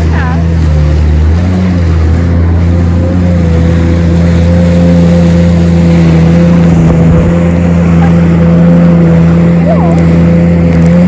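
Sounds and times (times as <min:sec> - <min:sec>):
jet ski engine running: 0:00.0 - 0:11.0
water rushing along hull: 0:00.0 - 0:11.0.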